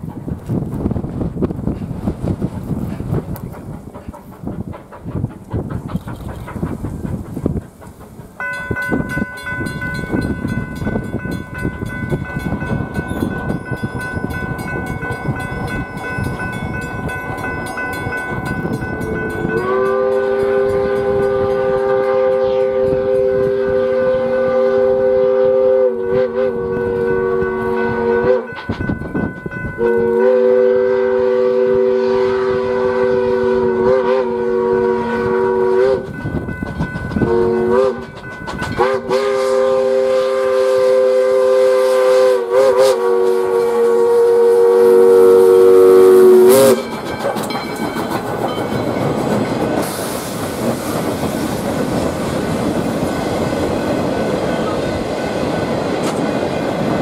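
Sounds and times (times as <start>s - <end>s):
wheels clacking over rail joints: 0.0s - 23.3s, 36.0s - 39.1s, 46.4s - 57.0s
train rumbling past: 0.0s - 57.0s
steam whistle blasts: 19.4s - 28.7s, 29.8s - 36.2s, 37.2s - 46.9s.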